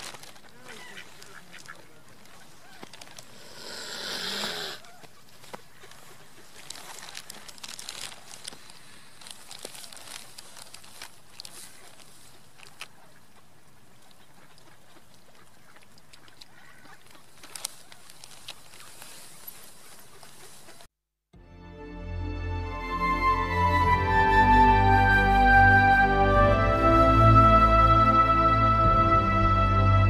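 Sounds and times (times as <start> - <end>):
wind hiss: 3.2 - 4.8
lapping water: 13.2 - 17.4.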